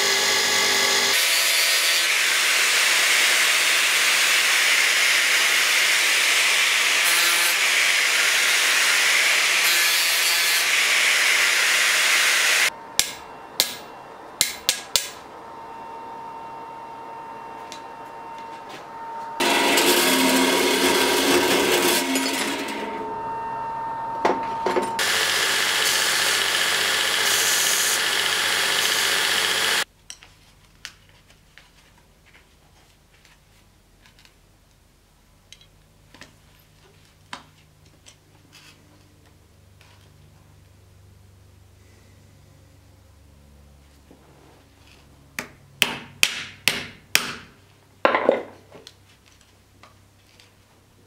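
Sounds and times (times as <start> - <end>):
belt grinder grinding metal: 0.0 - 12.7, 19.4 - 23.4, 24.6 - 29.9.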